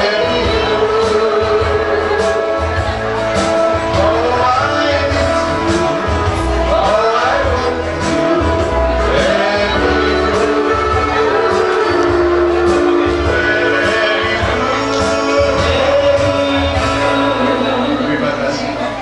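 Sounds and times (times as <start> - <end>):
held instrumental tones: 0.0 - 19.0
person singing: 0.0 - 19.0
pulsing bass: 0.0 - 19.0.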